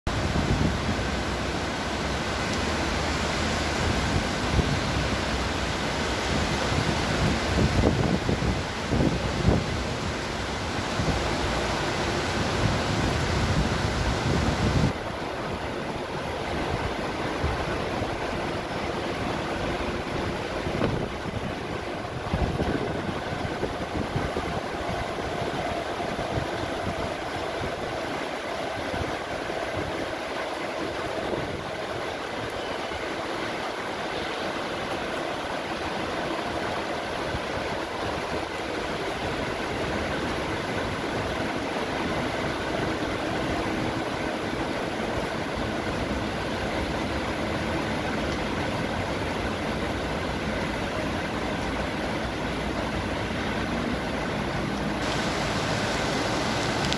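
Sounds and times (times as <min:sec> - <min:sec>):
heavy rain falling: 0:00.1 - 0:56.9
traffic on wet roads: 0:00.1 - 0:56.9
wind buffeting microphone: 0:03.7 - 0:32.4.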